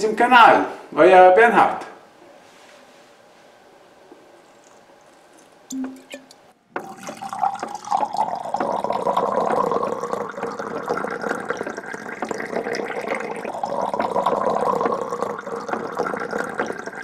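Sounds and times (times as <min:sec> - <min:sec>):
liquid pouring: 0:04.4 - 0:17.0.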